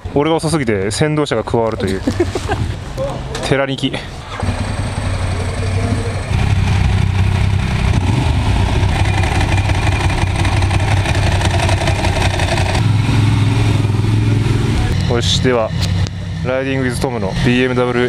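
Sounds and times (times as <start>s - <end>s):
motorcycle engine idling: 4.1s - 18.0s.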